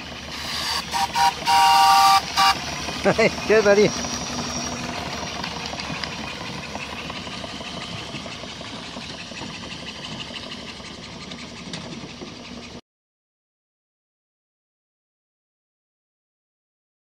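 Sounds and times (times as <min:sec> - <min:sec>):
steam engine chuffing: 0:00.0 - 0:12.8.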